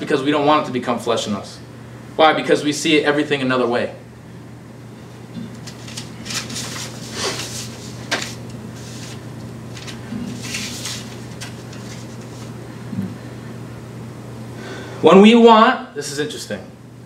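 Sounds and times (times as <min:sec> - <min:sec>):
low electrical hum: 0:00.0 - 0:17.0
soft rustling: 0:05.6 - 0:12.6.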